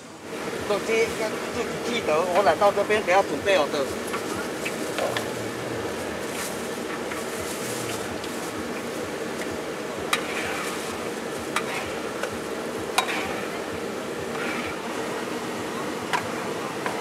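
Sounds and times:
dough frying in hot oil: 5.9 - 15.2.

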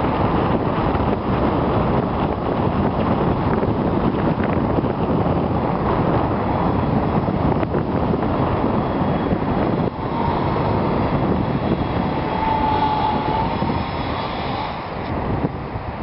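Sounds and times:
wind buffeting microphone: 0.0 - 16.0
quadcopter motors whining: 7.6 - 15.2.

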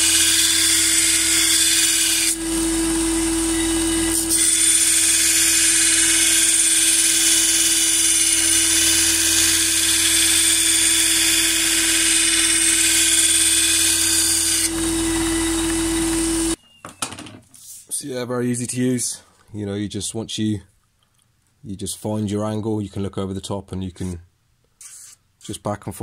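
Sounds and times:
belt sander grinding metal: 0.0 - 16.6
motor hum: 0.0 - 16.6.

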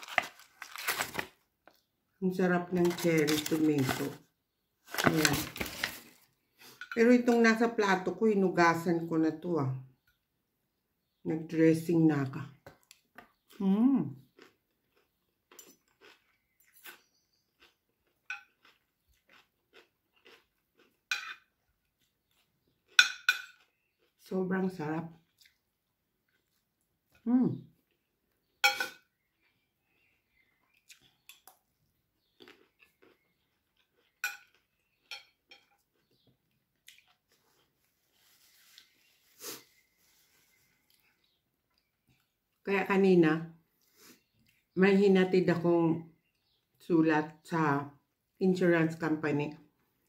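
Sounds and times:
person chewing: 12.7 - 24.2, 25.2 - 27.2, 29.1 - 42.6
cutlery clinking on a ceramic plate: 21.1 - 21.4, 23.0 - 23.6, 28.6 - 29.0, 34.2 - 35.8.

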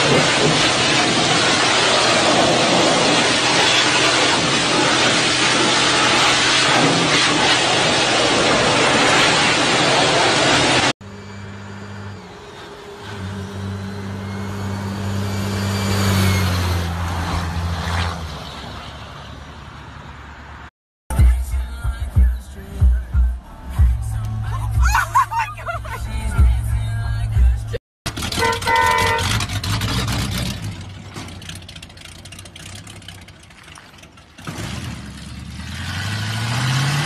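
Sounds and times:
truck driving past: 10.4 - 20.7.

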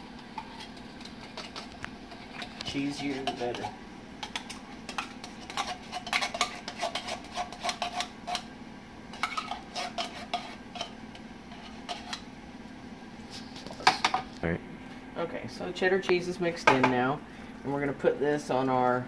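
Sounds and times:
utensil scraping metal skillet: 0.0 - 8.5, 9.1 - 12.3.

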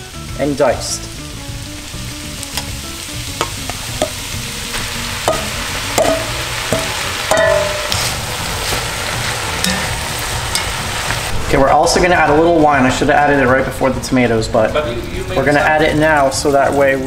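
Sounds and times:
vegetables sizzling in a pot: 0.0 - 17.0
metal spoon clinking on bowl: 5.3 - 8.0.

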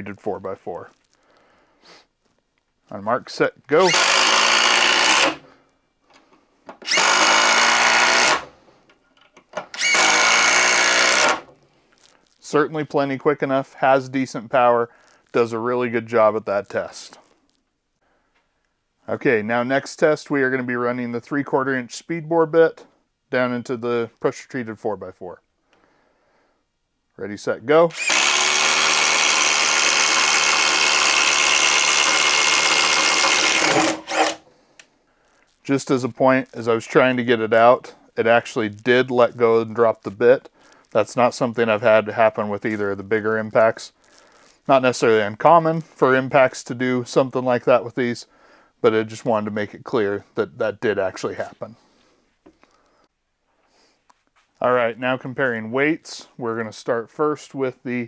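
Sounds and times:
impact driver driving screws: 3.8 - 5.5, 6.8 - 8.5, 9.7 - 11.5, 27.9 - 34.4.

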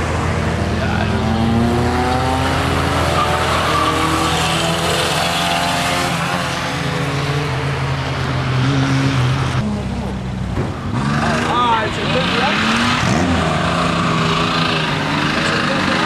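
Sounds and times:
car engine revving hard: 0.0 - 7.5, 10.8 - 16.0.

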